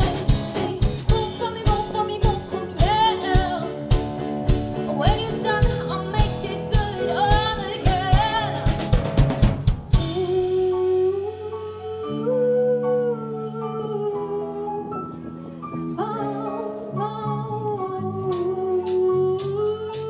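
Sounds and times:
woman singing: 0.0 - 4.0, 4.8 - 8.8, 10.0 - 20.0
live pop band playing: 0.0 - 20.0
loud drum hit: 5.7 - 10.3.

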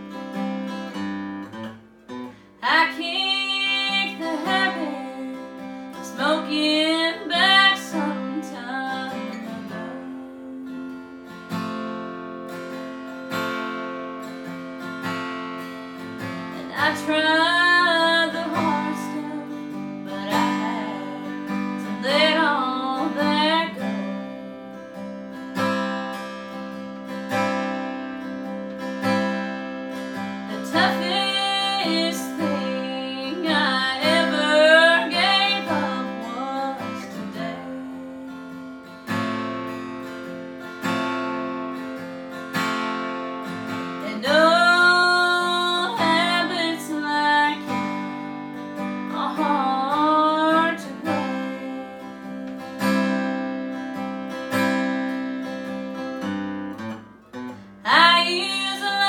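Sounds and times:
acoustic guitar strumming: 0.0 - 59.0
woman singing: 2.6 - 11.4, 16.2 - 25.7, 30.1 - 39.3, 43.8 - 53.7, 57.8 - 59.0.

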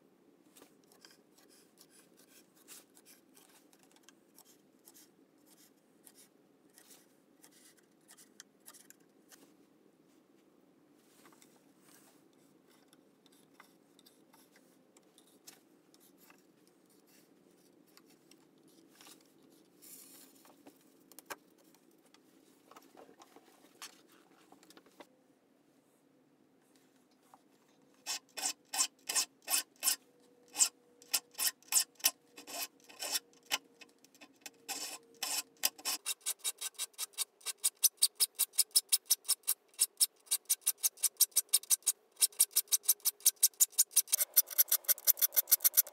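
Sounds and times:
file rasping on saw teeth: 28.0 - 33.6, 34.7 - 45.9.

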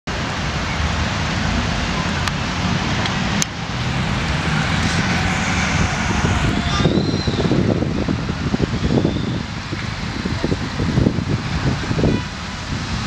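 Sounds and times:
road traffic rumble: 0.1 - 13.0
wind on the microphone: 1.5 - 13.0.

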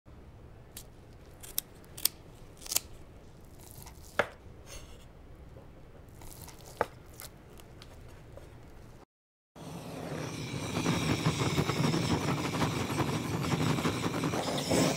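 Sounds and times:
scissors snipping: 0.8 - 2.9.

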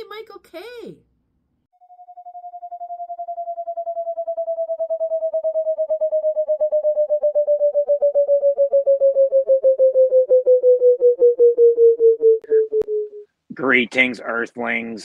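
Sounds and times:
pulsing electronic flying saucer tone: 1.8 - 13.2.

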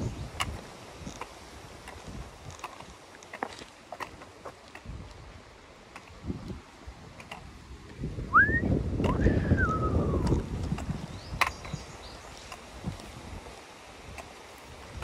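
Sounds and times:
wind buffeting microphone: 0.0 - 15.0
bird whistling: 8.3 - 10.3.

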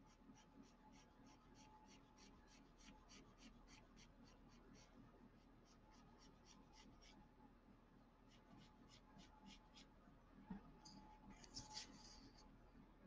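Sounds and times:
pencil scratching on paper: 0.0 - 7.2, 8.3 - 9.9, 11.3 - 12.4.

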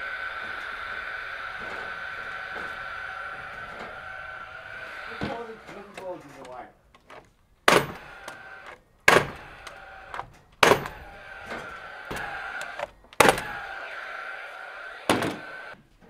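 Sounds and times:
nail gun whir: 0.0 - 15.8
nail gun firing: 7.0 - 13.8.

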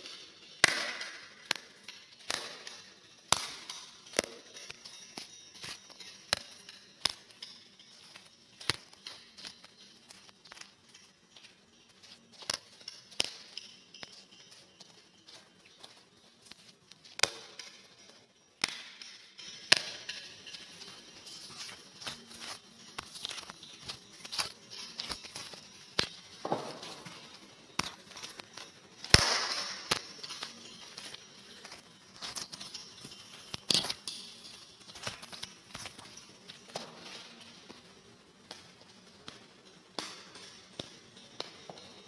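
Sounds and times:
crackling and clicking: 0.0 - 42.0
sharp pops and cracks: 27.8 - 34.2.

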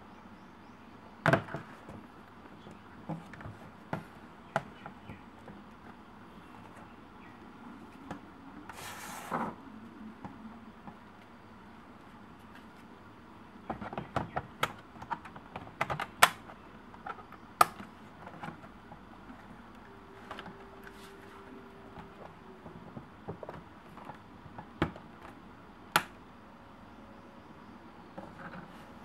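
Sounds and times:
sharp clicks and knocks on plastic: 13.7 - 18.7.

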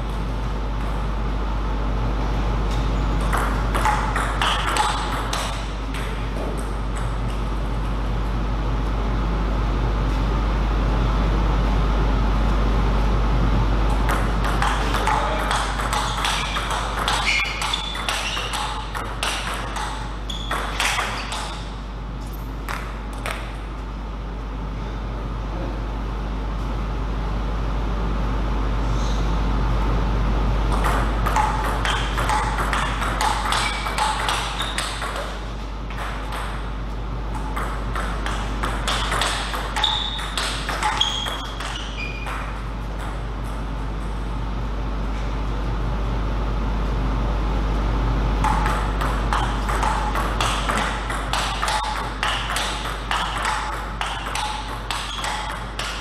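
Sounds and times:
steady low hum: 0.0 - 56.0
ball clicking off paddles and table: 2.7 - 7.4, 14.0 - 21.7, 30.7 - 36.7, 37.3 - 43.3, 48.4 - 56.0
short high squeaks: 16.4 - 18.9, 20.3 - 21.6, 39.8 - 42.4.

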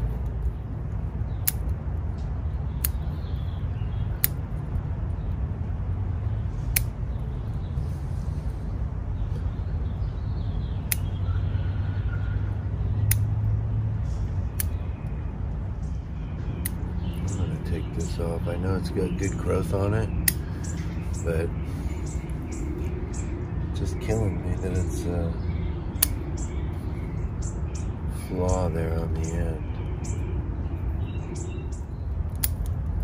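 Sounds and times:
steady low rumble: 0.0 - 33.0
scissors snipping twigs: 1.4 - 3.3, 4.2 - 4.6, 10.8 - 11.2, 13.0 - 13.4, 14.1 - 15.2, 19.1 - 20.8, 25.9 - 26.3, 32.3 - 33.0.

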